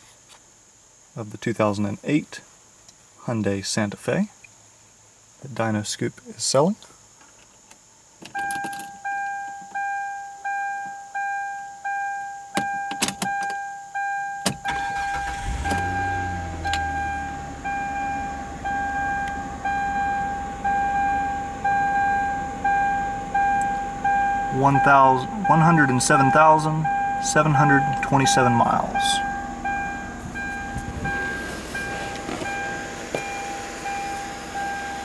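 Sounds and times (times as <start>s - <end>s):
dashboard warning chime: 8.4s - 35.0s
car engine cranking and idling: 14.4s - 35.0s.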